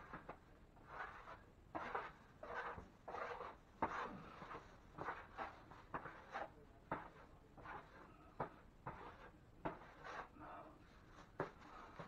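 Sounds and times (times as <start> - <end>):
hand tool scraping mud: 0.0 - 10.3.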